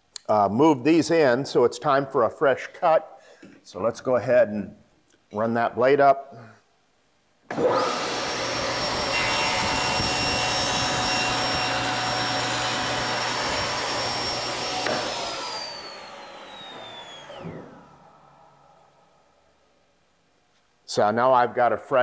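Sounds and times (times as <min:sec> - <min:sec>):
table saw running: 0:07.5 - 0:18.9
saw blade whine spinning down: 0:07.5 - 0:19.5.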